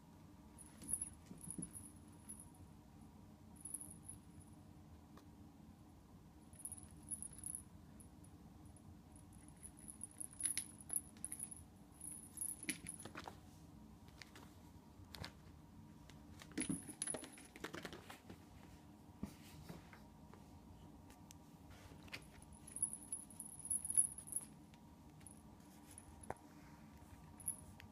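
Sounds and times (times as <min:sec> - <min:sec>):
small bell jingling faintly: 0:06.5 - 0:07.7, 0:22.5 - 0:24.5.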